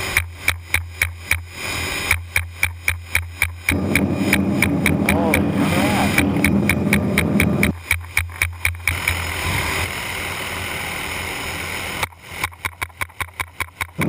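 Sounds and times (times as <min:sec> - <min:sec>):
rapid sharp clicks: 0:00.0 - 0:09.3, 0:12.0 - 0:14.0
helicopter noise: 0:01.5 - 0:14.0.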